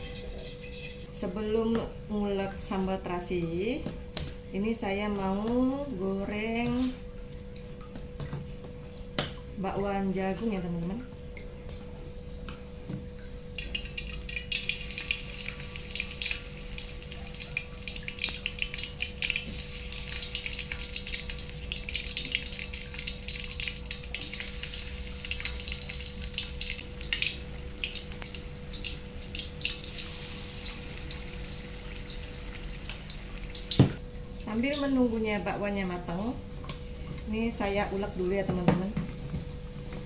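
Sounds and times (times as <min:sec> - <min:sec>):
batter sizzling in hot oil: 0:13.6 - 0:34.0.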